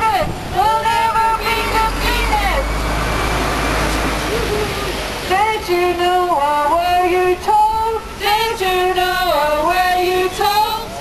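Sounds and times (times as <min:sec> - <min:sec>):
woman singing unaccompanied: 0:00.0 - 0:02.7, 0:05.3 - 0:11.0.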